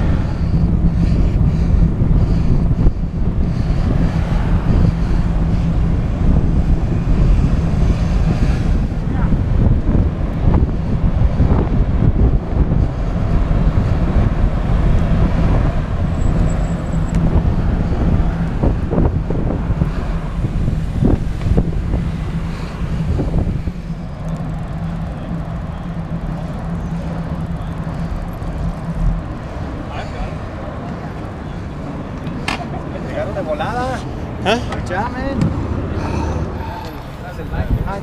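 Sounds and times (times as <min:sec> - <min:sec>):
wind on microphone: 0:00.0 - 0:32.3, 0:35.3 - 0:38.0
passing car traffic: 0:00.0 - 0:38.0
road noise: 0:00.0 - 0:38.0.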